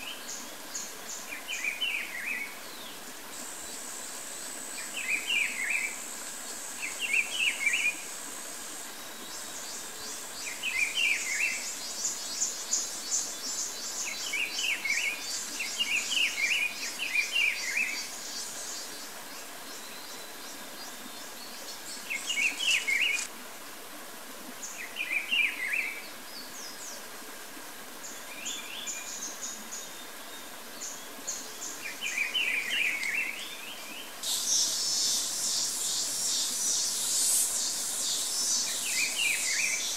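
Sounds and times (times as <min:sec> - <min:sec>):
insect trill: 0:34.2 - 0:39.9.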